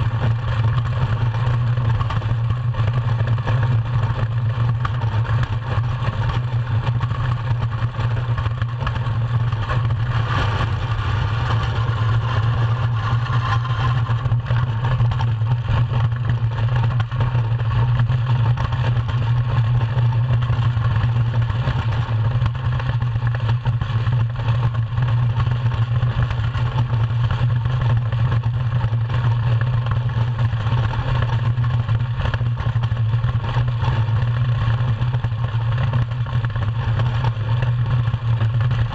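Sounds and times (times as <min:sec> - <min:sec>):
runners rumbling on ice: 0:00.0 - 0:38.9
wind noise: 0:08.3 - 0:16.6.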